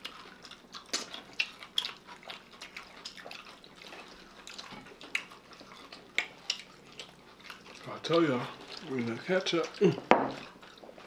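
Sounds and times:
mouth clicks and smacks: 0:00.0 - 0:07.8
people chewing food: 0:00.0 - 0:11.0.

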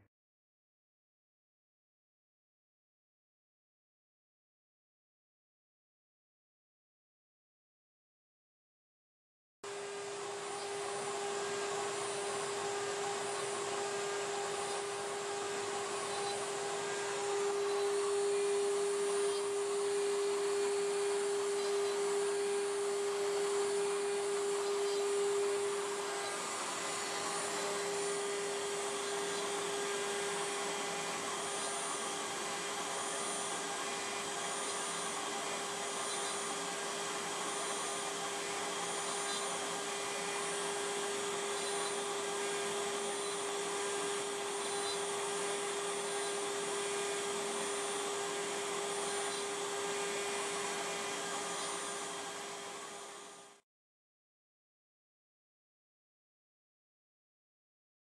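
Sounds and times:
router spindle whining: 0:09.7 - 0:53.6.

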